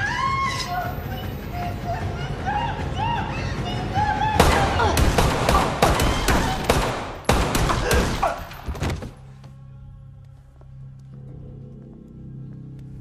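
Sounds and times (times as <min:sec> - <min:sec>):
rapid gunshots: 0:04.4 - 0:08.4.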